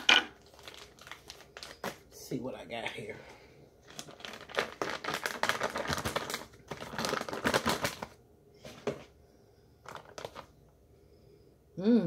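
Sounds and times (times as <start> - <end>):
plastic bag crinkling: 0.0 - 2.2, 3.8 - 9.1, 9.8 - 10.6.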